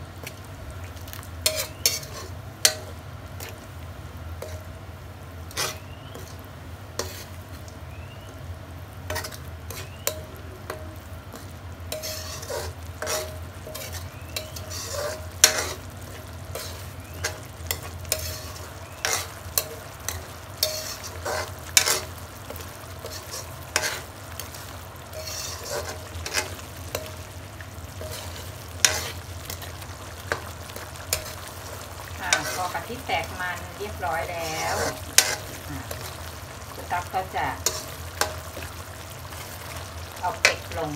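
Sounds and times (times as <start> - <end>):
curry paste frying in a pan: 0.0 - 40.9
spatula scraping a pan: 1.4 - 3.6, 5.5 - 7.5, 9.1 - 27.3, 27.9 - 40.9.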